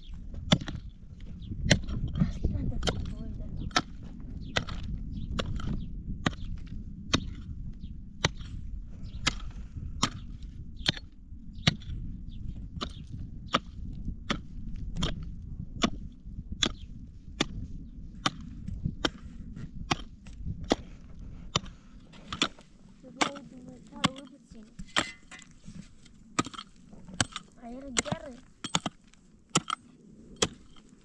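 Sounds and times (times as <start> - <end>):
low steady rumble: 0.0 - 31.0
hand tool striking wood: 21.5 - 25.6, 26.4 - 30.9.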